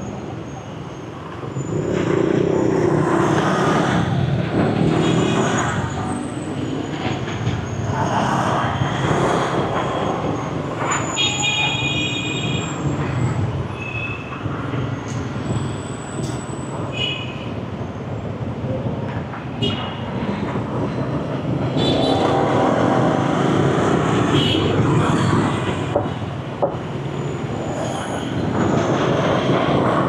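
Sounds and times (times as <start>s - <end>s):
motorbikes and cars passing: 1.3s - 11.7s, 17.5s - 30.0s.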